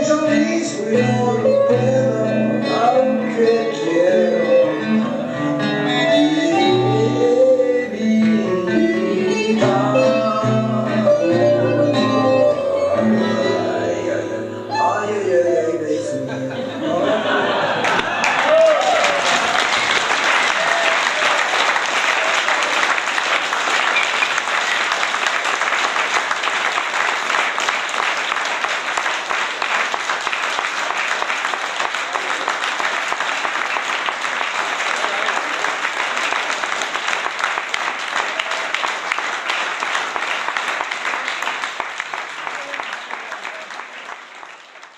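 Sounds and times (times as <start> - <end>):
audience applauding: 17.1 - 44.9.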